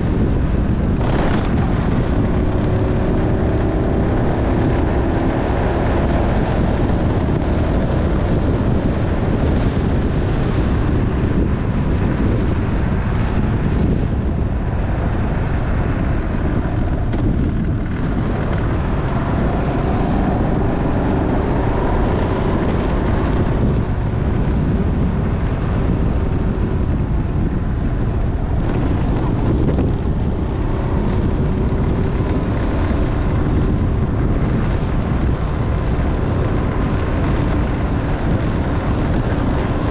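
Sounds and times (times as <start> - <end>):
motorcycle engine running: 0.0 - 39.9
wind rumble on microphone: 0.0 - 39.9.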